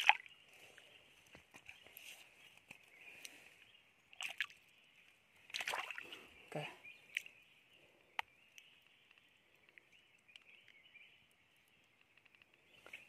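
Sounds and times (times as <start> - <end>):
hands splashing in water: 0.0 - 0.3, 4.2 - 4.6, 5.5 - 6.2.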